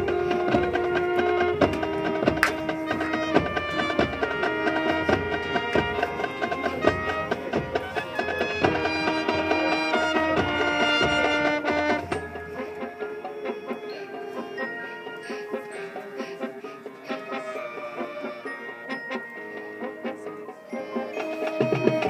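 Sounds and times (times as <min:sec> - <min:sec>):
drum strokes: 0:00.0 - 0:13.4, 0:21.0 - 0:22.0
marching band playing: 0:00.0 - 0:22.0.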